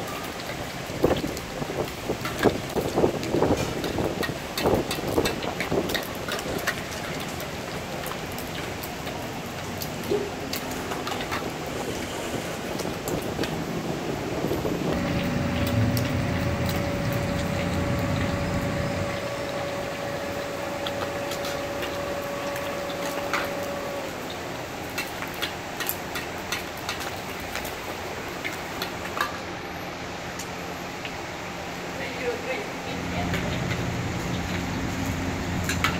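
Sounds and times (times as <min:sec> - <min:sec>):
hot oil sizzling: 0:00.0 - 0:35.9
low rumble: 0:14.5 - 0:23.8
steady whine: 0:14.9 - 0:24.5
ladles scraping a wok: 0:15.0 - 0:24.1.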